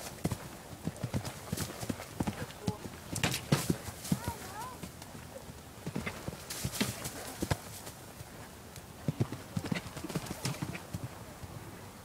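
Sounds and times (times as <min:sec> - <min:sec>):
hooves on dirt: 0:00.0 - 0:08.3.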